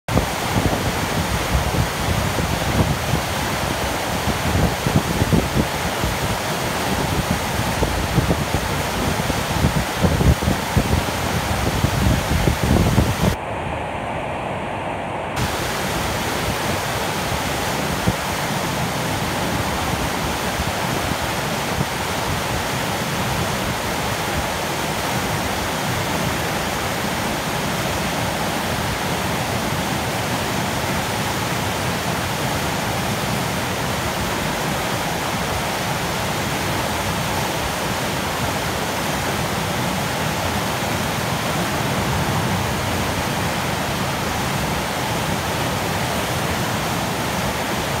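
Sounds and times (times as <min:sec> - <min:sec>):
river rapids rushing over rocks: 0:00.1 - 0:13.6, 0:15.4 - 0:48.0.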